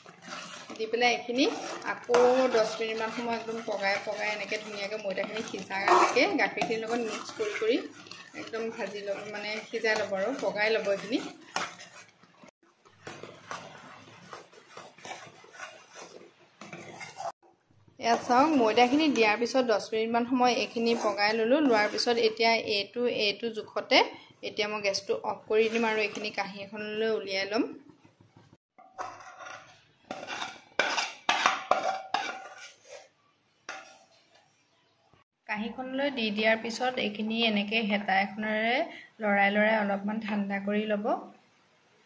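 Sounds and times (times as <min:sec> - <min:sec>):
ladle scraping a pan: 0:00.0 - 0:22.9, 0:24.2 - 0:27.2, 0:28.8 - 0:34.6.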